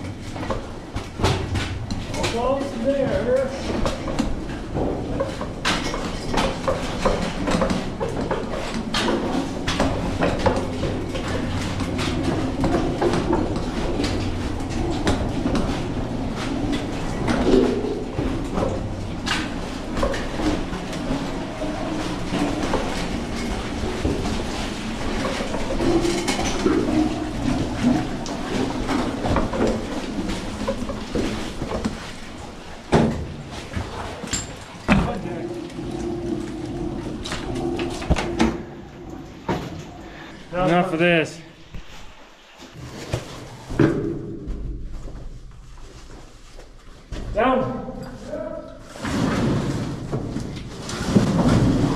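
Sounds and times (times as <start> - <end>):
ore car wheels clattering on rails: 0.0 - 39.9.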